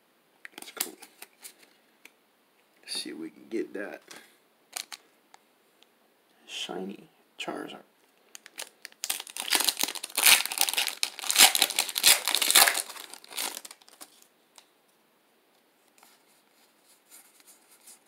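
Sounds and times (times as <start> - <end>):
foil wrapper tearing and crinkling: 8.4 - 14.2.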